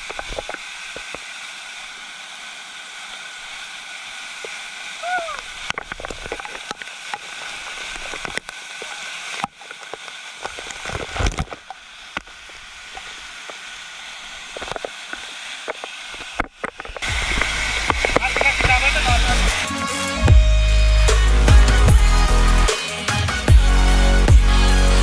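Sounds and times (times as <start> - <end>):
waterfall rushing over rock: 0.0 - 25.0
music: 17.2 - 25.0.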